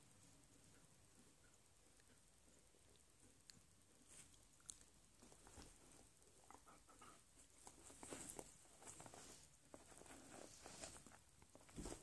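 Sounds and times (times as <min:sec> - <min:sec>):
bird rustling on bedding: 0:07.7 - 0:12.0.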